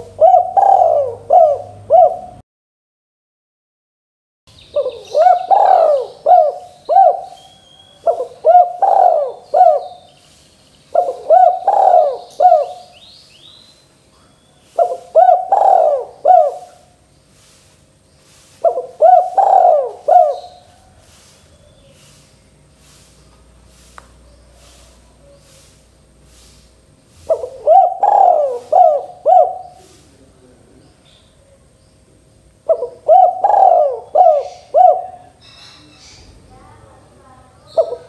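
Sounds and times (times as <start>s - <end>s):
dove cooing: 0.0s - 2.4s, 4.7s - 10.1s, 10.9s - 13.0s, 14.7s - 17.0s, 18.6s - 21.2s, 27.2s - 30.2s, 32.6s - 35.4s, 37.7s - 38.0s.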